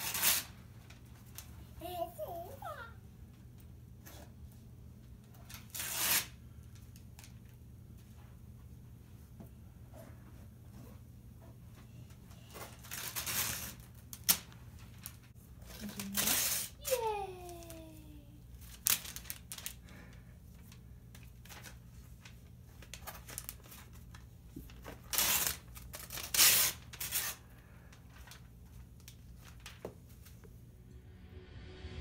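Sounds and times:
wrapping paper tearing: 0:00.0 - 0:01.5, 0:05.4 - 0:06.5, 0:12.6 - 0:20.1, 0:21.3 - 0:29.8
toddler vocal sound: 0:01.8 - 0:03.0
paper rustling: 0:12.3 - 0:17.9, 0:18.6 - 0:30.4.

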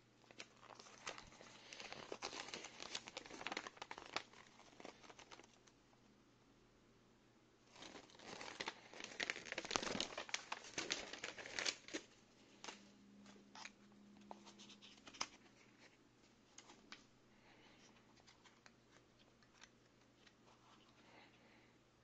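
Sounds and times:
paper crinkling: 0:00.2 - 0:05.8, 0:07.7 - 0:21.3.

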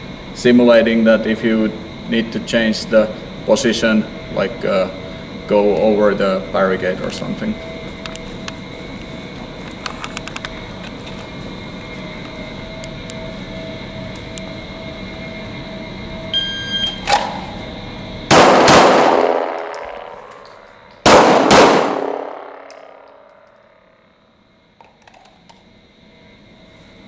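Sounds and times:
electronic start beep: 0:16.3 - 0:17.0
pistol shots echoing indoors: 0:18.3 - 0:20.4, 0:21.0 - 0:23.3.

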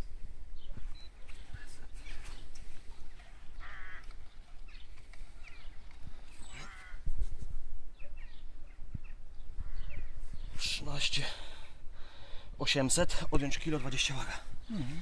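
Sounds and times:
faint bird chirps: 0:00.6 - 0:02.8, 0:07.9 - 0:10.8
harsh rasping bird calls: 0:01.2 - 0:07.1, 0:08.0 - 0:11.0.

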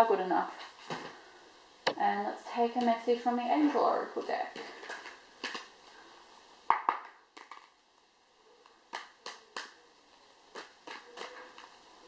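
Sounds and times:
cards being shuffled: 0:04.6 - 0:05.7, 0:10.5 - 0:11.8.

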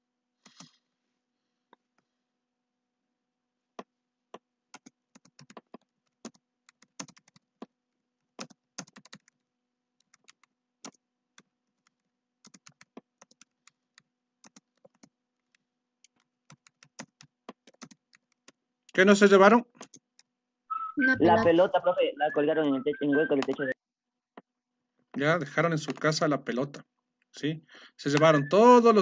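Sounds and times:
keyboard typing: 0:00.4 - 0:00.8, 0:03.8 - 0:19.0, 0:19.7 - 0:20.3, 0:23.2 - 0:23.8, 0:24.4 - 0:26.2.

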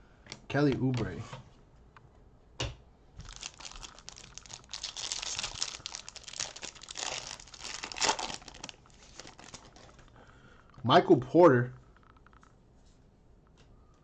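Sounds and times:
foil wrapper crinkling and tearing: 0:03.2 - 0:10.1.

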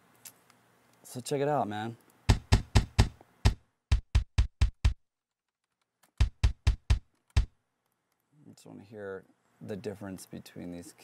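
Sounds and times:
kick drum hits: 0:02.3 - 0:05.0, 0:06.2 - 0:07.5.

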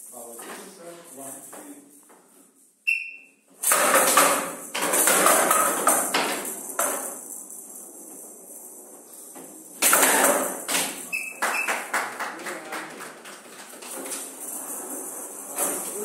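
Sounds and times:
rattle ball jingling and rolling: 0:04.1 - 0:11.7, 0:13.8 - 0:16.0.

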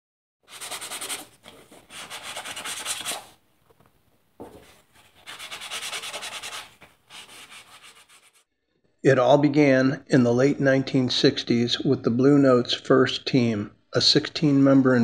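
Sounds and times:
rasping scraping strokes: 0:00.5 - 0:03.3, 0:04.6 - 0:08.4.

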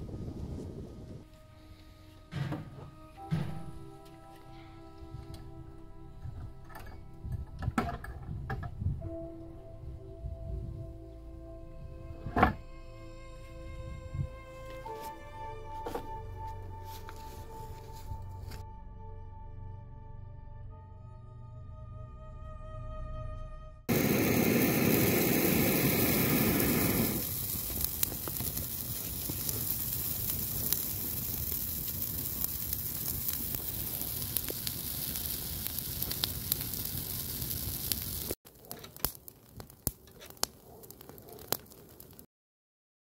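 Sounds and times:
fire crackling and popping: 0:23.9 - 0:42.3.

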